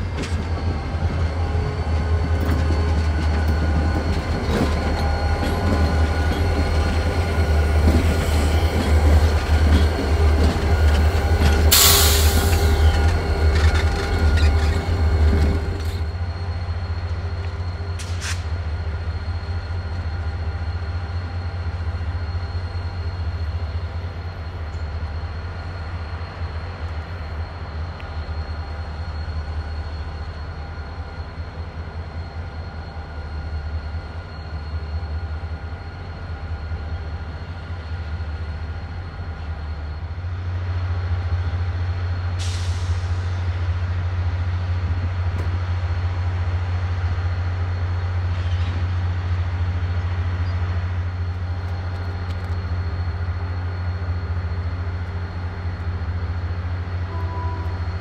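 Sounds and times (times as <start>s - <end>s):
diesel locomotive engine rumble: 0.0s - 58.0s.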